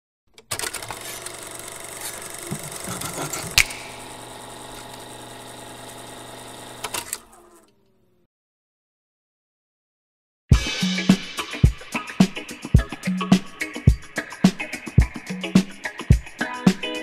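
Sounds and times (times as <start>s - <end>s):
film projector whirring and rattling: 0.4s - 7.9s
projector clicks: 3.5s - 5.1s.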